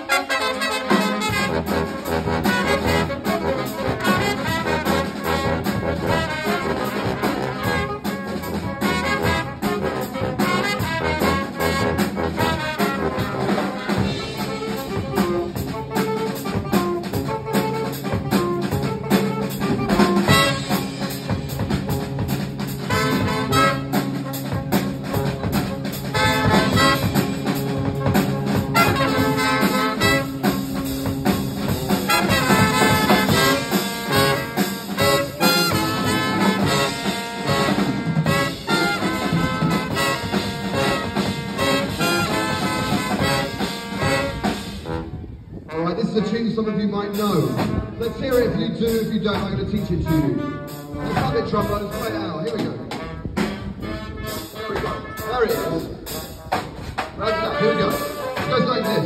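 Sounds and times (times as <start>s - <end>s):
brass band playing: 0.0s - 59.0s.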